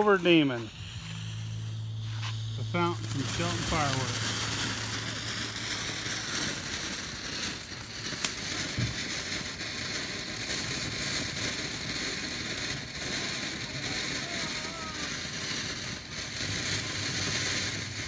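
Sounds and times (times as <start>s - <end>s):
firework fountain hissing: 0.0s - 18.0s
sharp pop: 8.2s - 9.1s.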